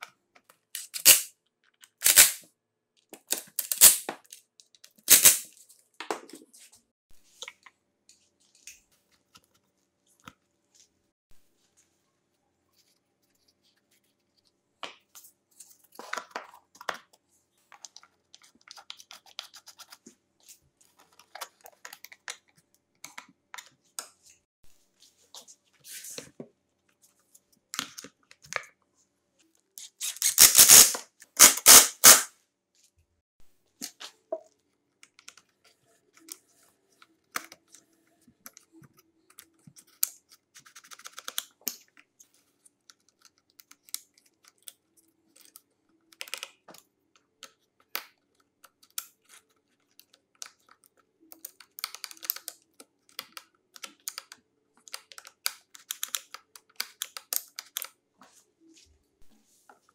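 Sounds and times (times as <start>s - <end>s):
plastic parts clicking and rattling: 0.0s - 5.5s, 38.4s - 58.0s.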